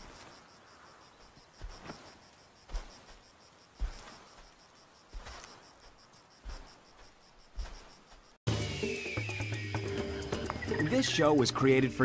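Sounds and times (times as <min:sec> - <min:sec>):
insects trilling: 0:00.0 - 0:12.0
soft crunching thud: 0:01.6 - 0:08.3.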